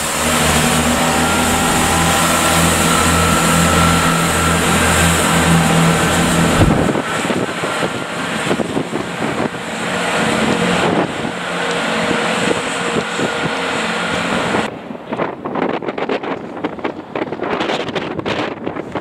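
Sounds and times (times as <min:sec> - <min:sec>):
diesel engine drone: 0:00.0 - 0:15.0.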